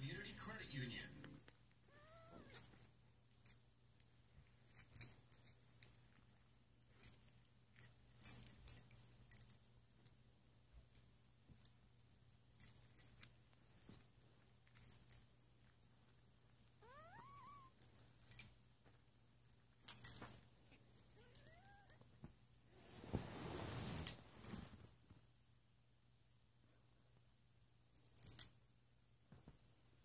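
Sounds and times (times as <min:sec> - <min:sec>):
collar jingling and fur rustling: 0:04.3 - 0:10.1, 0:12.6 - 0:16.8, 0:17.8 - 0:21.7, 0:23.2 - 0:24.9.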